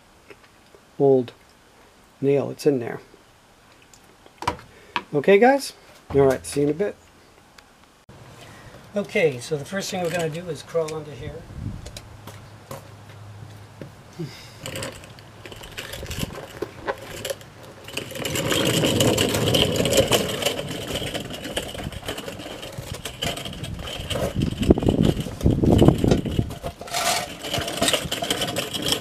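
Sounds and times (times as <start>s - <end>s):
creeper rattling over concrete: 6.1s - 7.0s, 8.9s - 12.9s, 14.4s - 29.0s.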